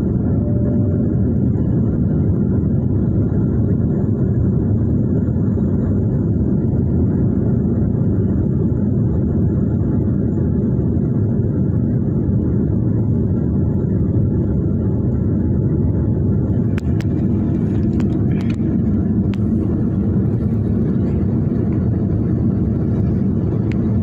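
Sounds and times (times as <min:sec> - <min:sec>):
airliner cabin engine rumble: 0:00.0 - 0:24.0.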